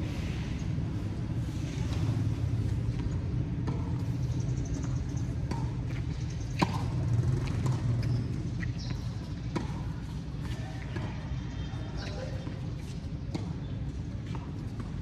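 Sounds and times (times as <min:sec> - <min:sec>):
tennis ball being struck: 0:05.3 - 0:07.0.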